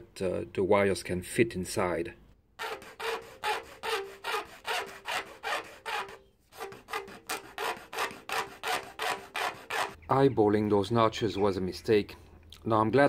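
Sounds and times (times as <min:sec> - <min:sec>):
hand file rasping on plastic: 0:02.6 - 0:10.0.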